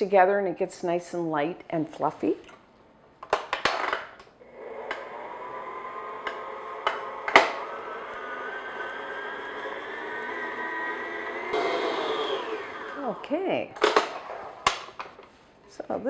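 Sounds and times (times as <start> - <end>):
stand mixer motor whining: 4.4 - 14.0.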